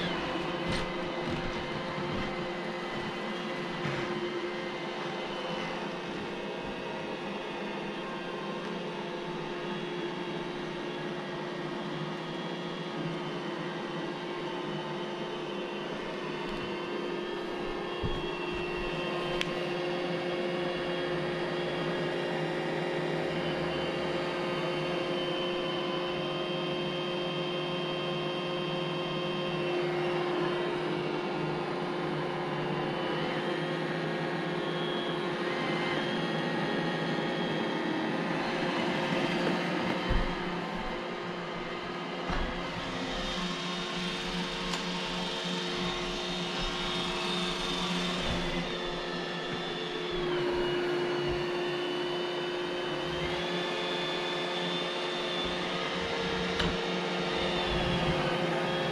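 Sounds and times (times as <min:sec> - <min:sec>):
robot vacuum motor humming: 0:00.0 - 0:13.6, 0:15.5 - 0:22.4, 0:32.8 - 0:58.9.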